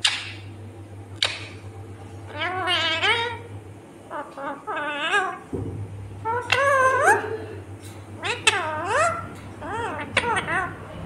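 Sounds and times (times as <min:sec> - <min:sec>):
parrot warbling calls: 0:02.3 - 0:03.5, 0:04.1 - 0:05.5, 0:06.1 - 0:07.6, 0:08.2 - 0:11.0.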